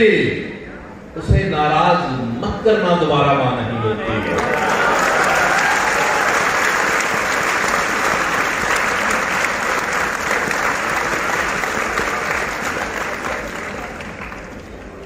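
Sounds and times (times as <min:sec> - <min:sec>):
audience applauding: 0:04.2 - 0:15.0.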